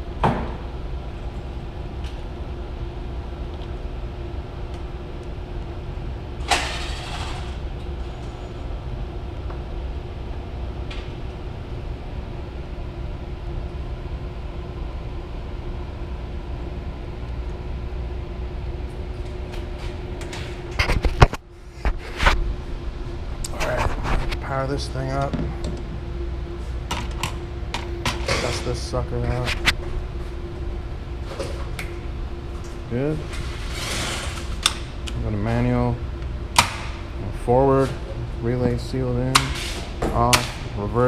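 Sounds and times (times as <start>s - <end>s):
machinery hum: 0.0s - 41.0s.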